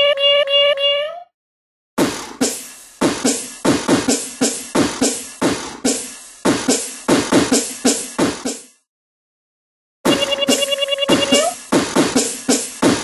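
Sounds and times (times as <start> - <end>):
beatboxing: 10.1 - 13.0.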